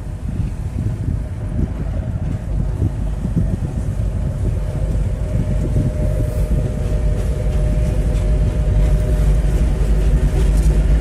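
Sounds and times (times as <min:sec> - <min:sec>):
diesel locomotive running past: 0:00.0 - 0:11.0
wind buffeting microphone: 0:00.0 - 0:11.0
tank cars rolling: 0:06.8 - 0:11.0.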